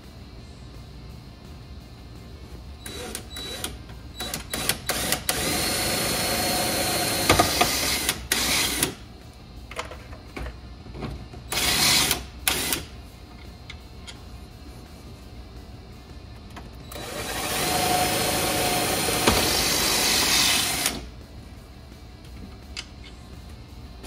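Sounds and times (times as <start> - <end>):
cordless drill running: 16.9 - 21.0.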